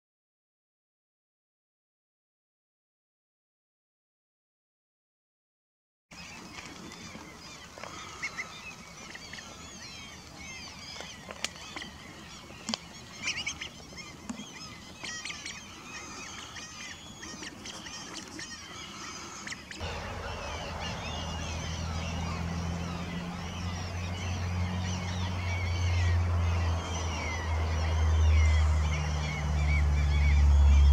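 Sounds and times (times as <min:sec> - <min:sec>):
birds chirping: 0:06.1 - 0:30.9
steady low hum: 0:18.7 - 0:30.9.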